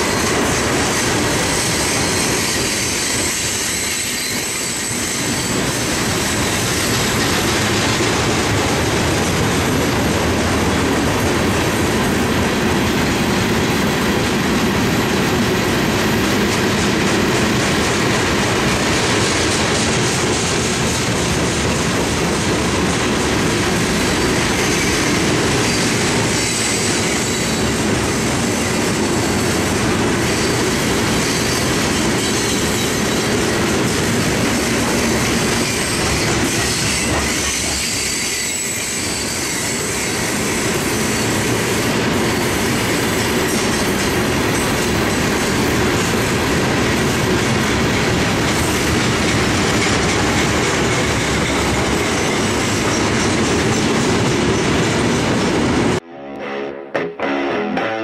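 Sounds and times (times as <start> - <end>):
train wheels squealing: 0.0 - 8.0, 24.0 - 46.2, 47.1 - 55.4
freight train rolling past: 0.0 - 56.0.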